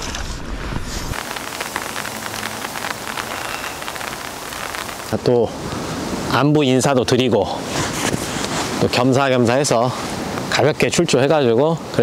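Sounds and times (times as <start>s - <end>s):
raindrops ticking: 1.1s - 6.1s
rain falling: 1.1s - 7.7s.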